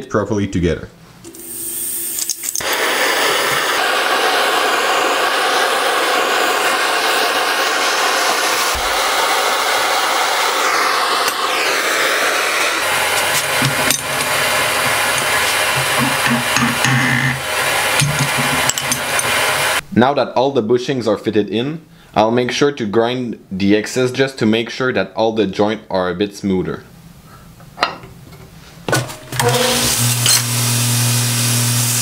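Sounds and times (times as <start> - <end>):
gas torch flame hissing: 1.3 - 19.8, 29.5 - 32.0.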